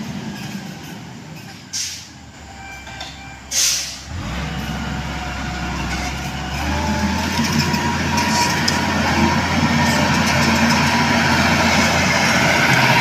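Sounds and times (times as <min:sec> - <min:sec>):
grader diesel engine running: 0:00.0 - 0:13.0.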